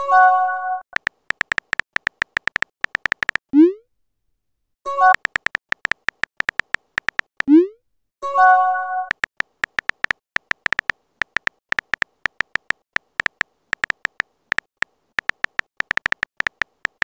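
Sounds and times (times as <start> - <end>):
keyboard tap clicks: 1.0 - 3.5, 5.0 - 7.5, 9.1 - 17.0.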